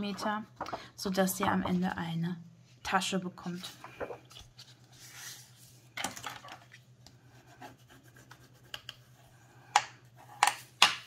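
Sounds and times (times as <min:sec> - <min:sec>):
paper scraping and rustling: 0:03.5 - 0:06.9.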